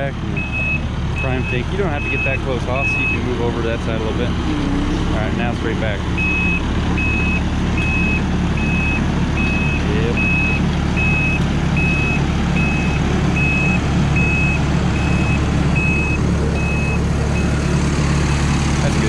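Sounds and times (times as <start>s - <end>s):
diesel engine running: 0.0s - 19.0s
backup alarm beeping: 6.2s - 17.6s.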